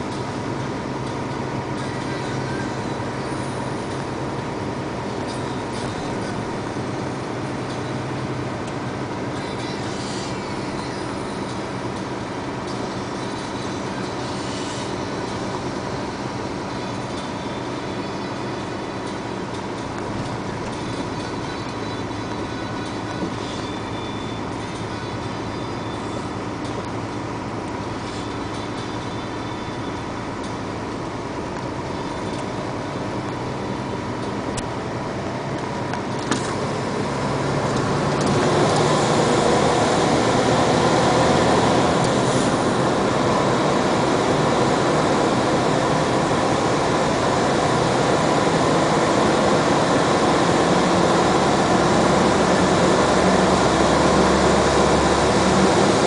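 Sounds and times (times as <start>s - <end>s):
vehicle engine drone: 0.0s - 56.0s.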